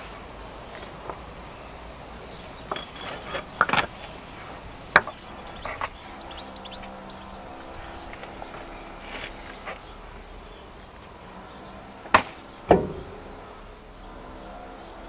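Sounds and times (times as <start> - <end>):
insect buzzing: 0.0 - 15.0
metallic clinks and knocks: 2.6 - 6.0.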